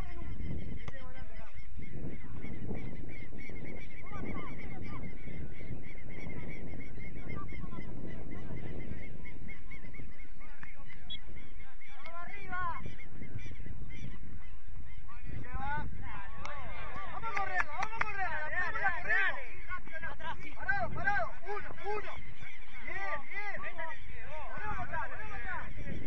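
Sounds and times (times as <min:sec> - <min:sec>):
wind rumbling on microphone: 0:00.0 - 0:26.0
bird calling in quick notes: 0:00.4 - 0:15.4.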